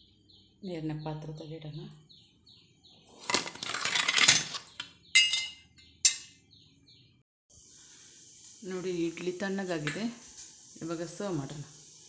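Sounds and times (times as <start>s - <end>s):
ringing metal clinks: 5.2s - 6.3s.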